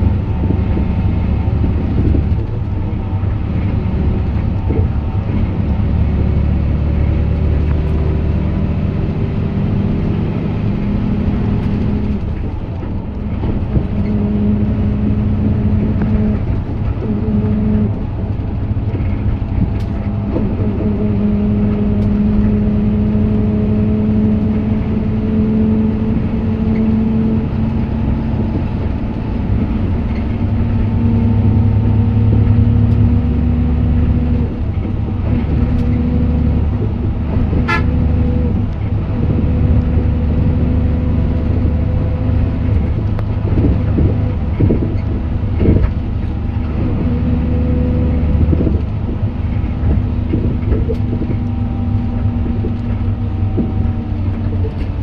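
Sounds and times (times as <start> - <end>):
bus diesel engine droning: 0.0 - 55.0.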